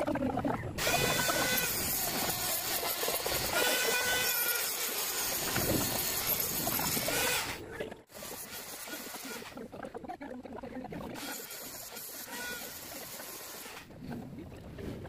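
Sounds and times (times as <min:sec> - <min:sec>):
die grinder whining on steel: 0:00.8 - 0:09.6, 0:11.2 - 0:13.9.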